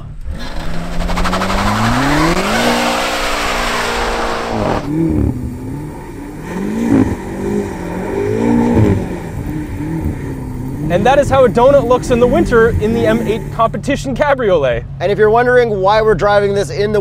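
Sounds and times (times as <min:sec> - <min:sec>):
car engine revving: 0:00.0 - 0:15.4.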